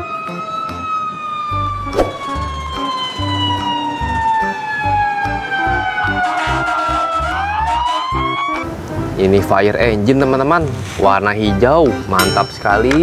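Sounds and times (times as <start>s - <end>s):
siren falling wail: 0.0s - 8.6s.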